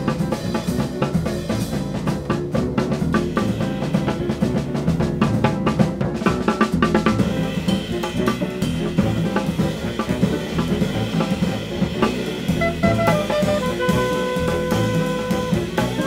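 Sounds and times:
drum kit: 0.0 - 16.0
live band music: 0.0 - 16.0.

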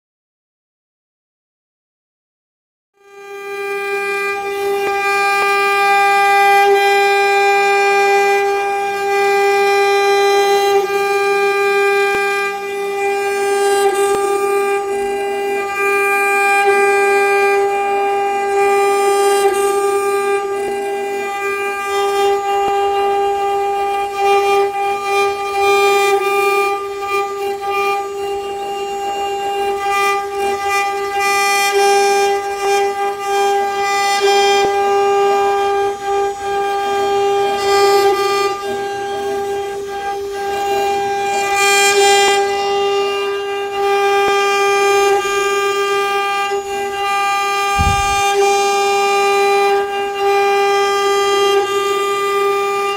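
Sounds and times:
router spindle high-pitched whine: 3.4 - 52.9
bit cutting through wood: 47.7 - 48.8.

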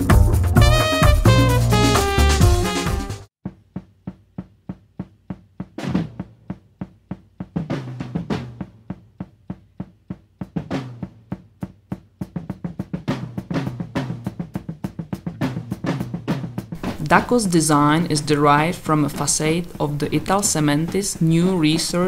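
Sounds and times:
quick snare drum hits: 0.0 - 17.2.

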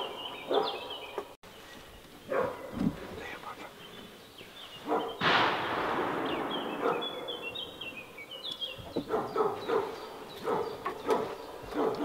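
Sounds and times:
small birds chirping: 0.0 - 5.4, 6.1 - 12.0
dog barking quickly: 0.5 - 0.8, 2.3 - 2.8, 4.8 - 5.2, 6.8 - 7.4, 9.0 - 12.0.

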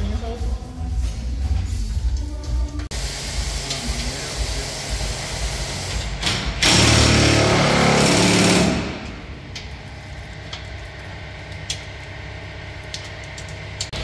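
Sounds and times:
handheld power tool running: 2.9 - 9.2.

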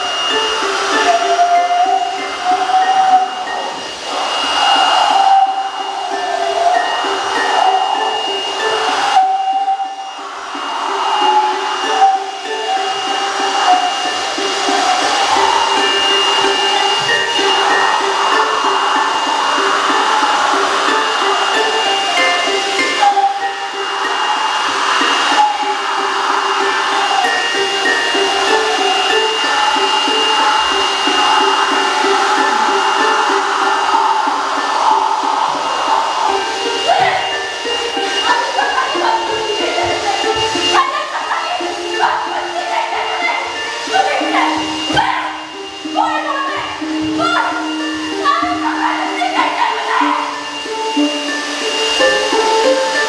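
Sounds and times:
electric blower running: 0.0 - 53.0.

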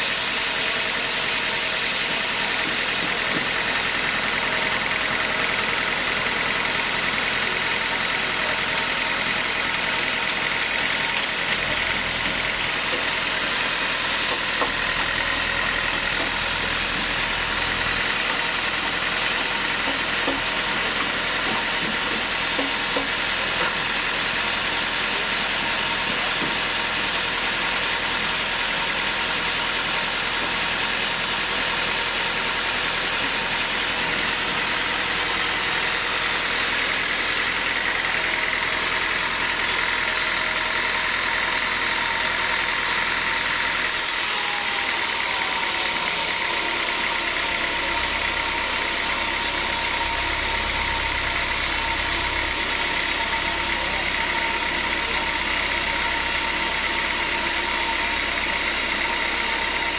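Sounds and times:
band saw cutting log: 0.0 - 59.9.

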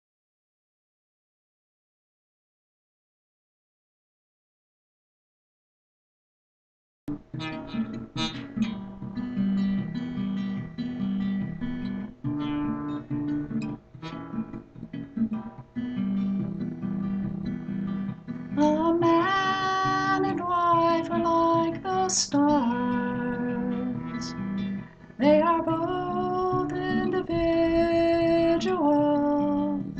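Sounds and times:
acoustic guitar chords: 7.1 - 29.9
woman singing: 18.5 - 24.5, 25.2 - 29.9.

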